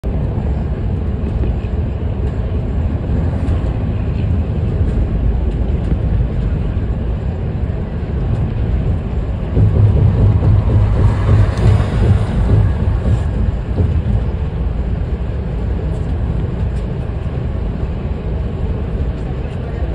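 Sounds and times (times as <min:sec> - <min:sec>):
bus engine and road noise: 0:00.0 - 0:19.9.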